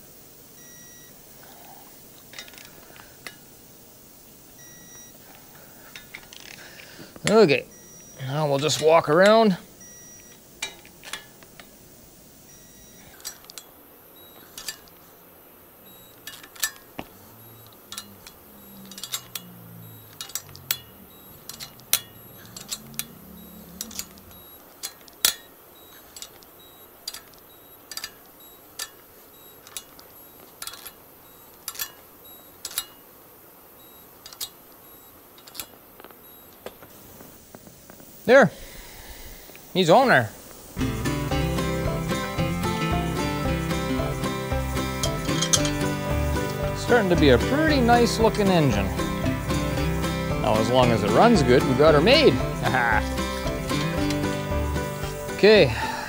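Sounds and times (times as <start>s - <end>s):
metallic tool clicks: 16.2s - 17.0s, 17.6s - 31.0s, 31.6s - 33.0s, 34.2s - 34.6s, 35.4s - 36.8s.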